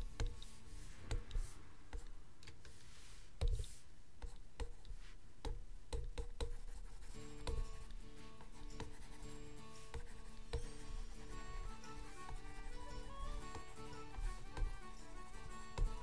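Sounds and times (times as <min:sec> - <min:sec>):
soft scratchy stylus strokes: 0:00.0 - 0:03.9, 0:06.6 - 0:16.0
stylus tapping drawing tablet: 0:00.0 - 0:16.0
concertina background music: 0:07.4 - 0:16.0.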